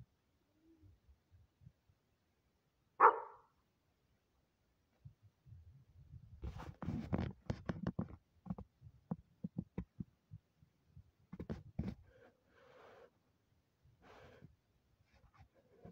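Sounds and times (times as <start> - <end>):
handling knocks and taps on phone: 7.0 - 10.1.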